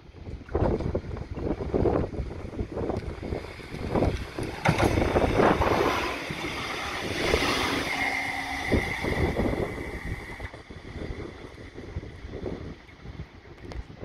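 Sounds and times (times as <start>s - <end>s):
tram wheels rumbling on rail: 3.1s - 11.2s
high whine: 3.8s - 12.1s.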